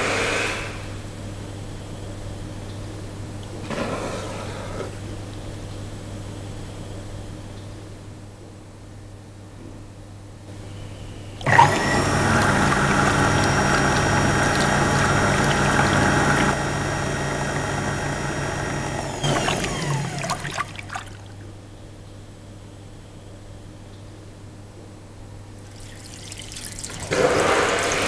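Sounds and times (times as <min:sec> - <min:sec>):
vacuum toilet flushing: 0:00.0 - 0:01.0, 0:03.5 - 0:05.0, 0:11.4 - 0:21.5, 0:25.6 - 0:28.0.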